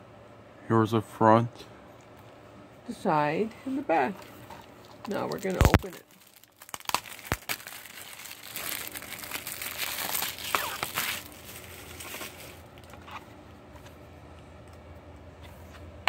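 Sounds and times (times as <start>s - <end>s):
plastic wrap crinkling and tearing: 4.7s - 13.2s.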